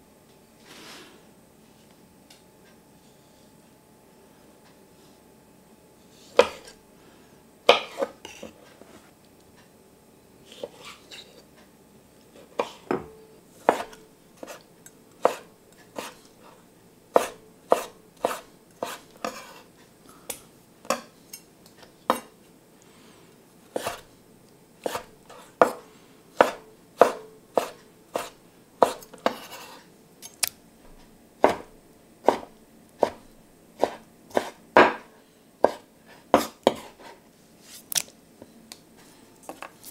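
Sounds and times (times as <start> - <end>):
knife cutting on wooden board: 13.6 - 14.6, 15.2 - 16.2, 17.2 - 19.7, 23.8 - 24.1, 24.8 - 25.8, 26.4 - 29.9, 31.4 - 33.2, 33.8 - 35.0, 35.6 - 37.2.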